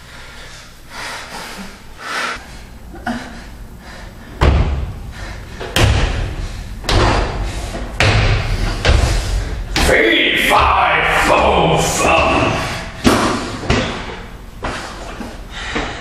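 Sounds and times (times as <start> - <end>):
heavy slamming thuds: 4.3 - 14.8.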